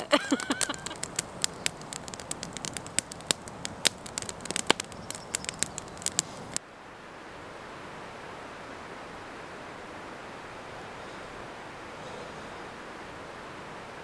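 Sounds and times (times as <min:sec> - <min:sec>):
campfire crackling and popping: 0:00.0 - 0:06.6
steady rushing hiss: 0:00.0 - 0:14.0.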